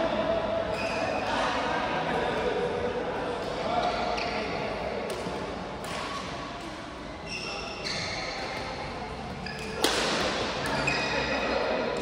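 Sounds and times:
racket hitting shuttlecock: 5.0 - 6.8, 9.6 - 10.8
shoes squeaking on court: 7.2 - 9.9, 10.6 - 11.4.

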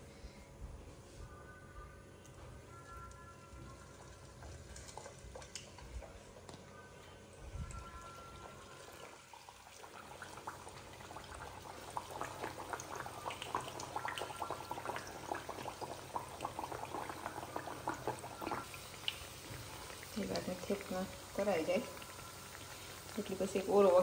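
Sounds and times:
dough sizzling in hot oil: 7.8 - 24.0.

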